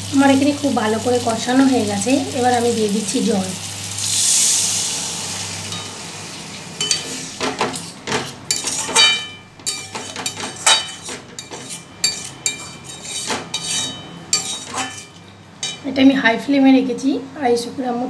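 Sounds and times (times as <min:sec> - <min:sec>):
water sizzling in hot pan: 0:00.0 - 0:07.6
spatula scraping a pan: 0:05.7 - 0:15.8.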